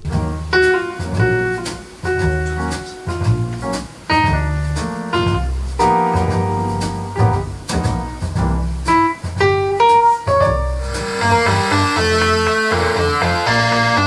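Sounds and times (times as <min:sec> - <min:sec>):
bass line: 0:00.0 - 0:14.0
drum hits: 0:00.0 - 0:14.0
keyboard chords: 0:10.8 - 0:14.0.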